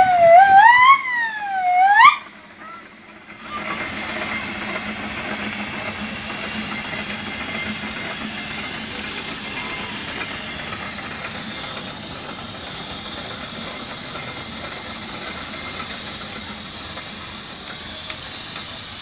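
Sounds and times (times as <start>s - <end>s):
steam hissing: 0.0s - 19.0s.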